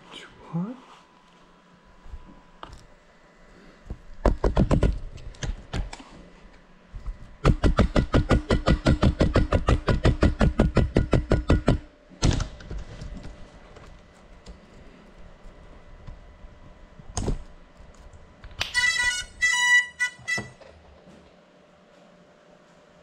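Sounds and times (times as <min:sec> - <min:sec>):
drone knocking against hard surfaces: 0:03.9 - 0:05.9, 0:07.4 - 0:12.9.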